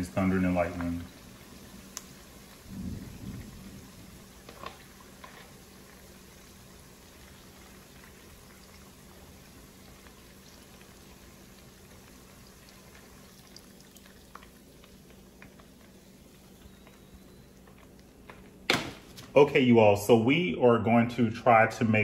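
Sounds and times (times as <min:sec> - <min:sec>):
deep-frying oil sizzling: 0:00.0 - 0:19.1
low rumble: 0:02.7 - 0:04.2.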